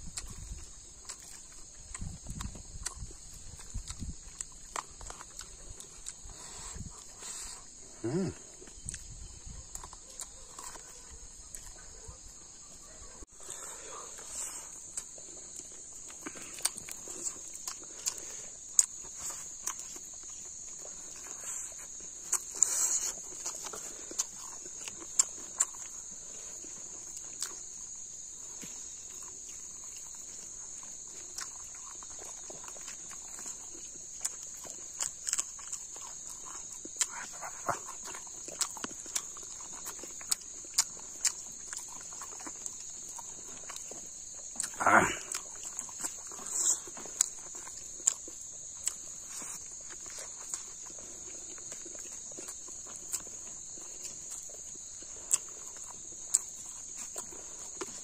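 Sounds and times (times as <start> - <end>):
chewing and lip-smacking: 0.0 - 58.0
high drone of insects: 0.0 - 58.0.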